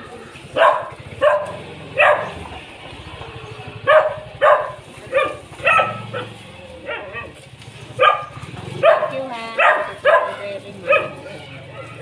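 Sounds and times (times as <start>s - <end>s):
dog barking: 0.6s - 2.5s, 3.8s - 7.4s, 8.0s - 12.0s.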